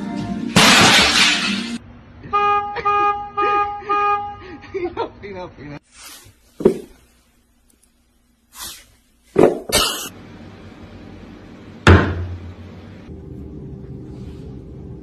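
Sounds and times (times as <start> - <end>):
knocks and thumps: 6.6 - 7.0, 9.4 - 9.8, 11.8 - 12.4.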